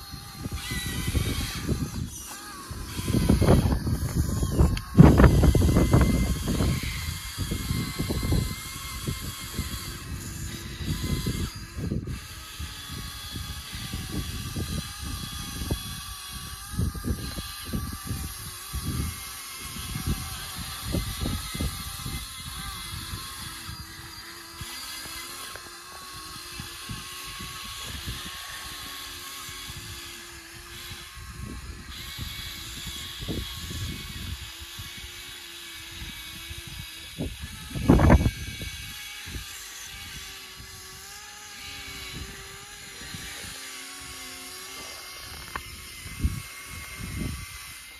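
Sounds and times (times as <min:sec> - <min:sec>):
electric motors whining: 0:00.0 - 0:47.9.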